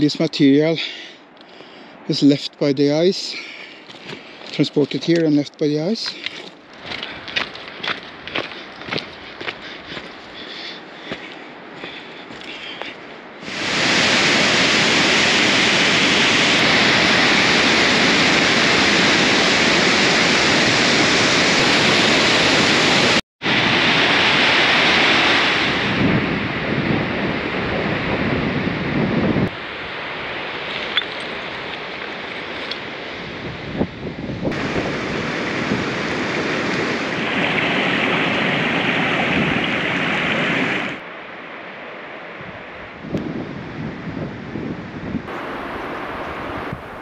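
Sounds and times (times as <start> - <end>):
river rapids rushing: 7.8 - 25.8, 45.3 - 47.0.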